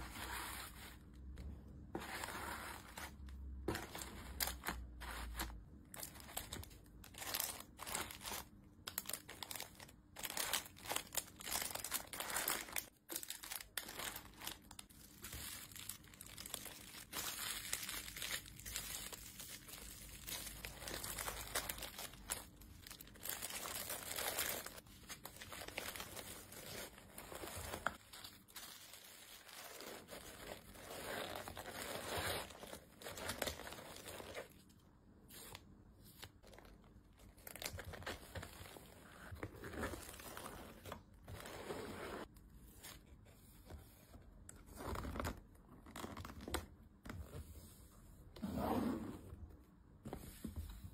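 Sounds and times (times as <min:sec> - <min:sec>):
plastic packaging crinkling: 0:05.9 - 0:30.7.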